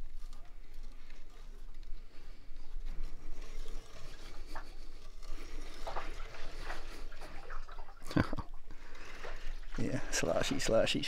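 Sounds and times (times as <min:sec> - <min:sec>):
water sloshing in washer tub: 0:05.6 - 0:10.6.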